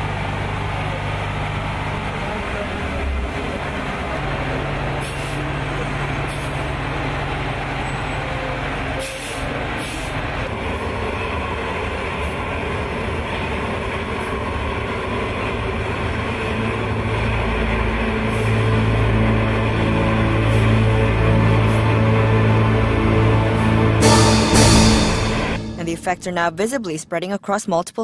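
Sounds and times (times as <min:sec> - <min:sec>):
low hum: 0:15.5 - 0:27.0.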